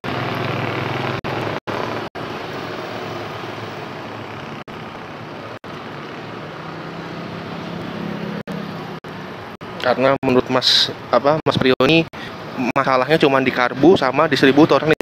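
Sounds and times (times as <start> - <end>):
vehicle engine running: 0.0 - 9.9.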